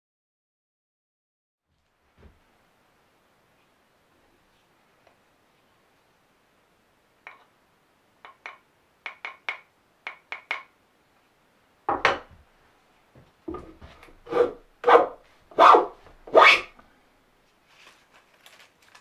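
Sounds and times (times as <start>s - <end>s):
hand plane rasping along wood: 14.2s - 16.7s.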